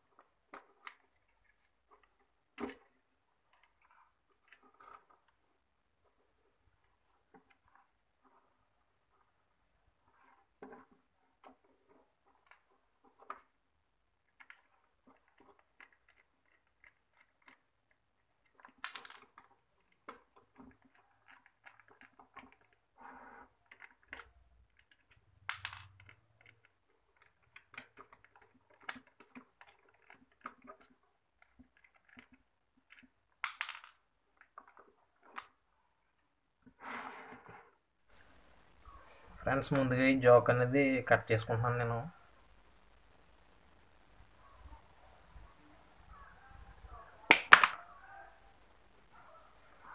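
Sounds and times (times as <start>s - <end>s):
circuit board being handled: 6.8s - 35.6s
sharp scrapes and knocks: 36.7s - 38.3s.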